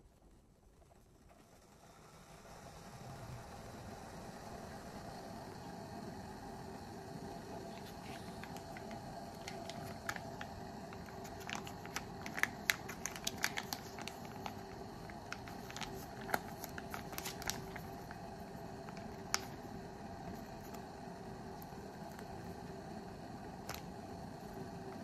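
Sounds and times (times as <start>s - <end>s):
faint steady hum: 0.0s - 25.0s
plastic sachet crinkling: 7.5s - 20.8s, 23.6s - 24.0s.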